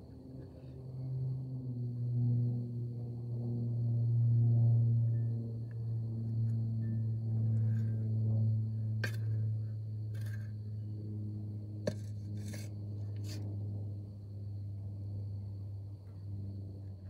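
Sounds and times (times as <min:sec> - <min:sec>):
steady low hum: 0:00.0 - 0:17.0
shovel scraping soil: 0:09.0 - 0:09.5, 0:10.1 - 0:10.6, 0:11.8 - 0:13.5.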